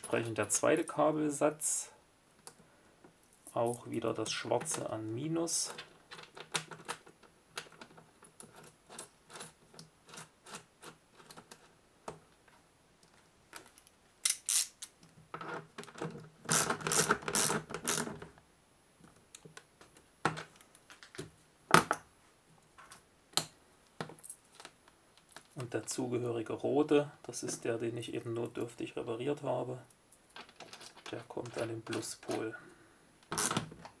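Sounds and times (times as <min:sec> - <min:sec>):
rustling and rattling: 0:30.1 - 0:32.6.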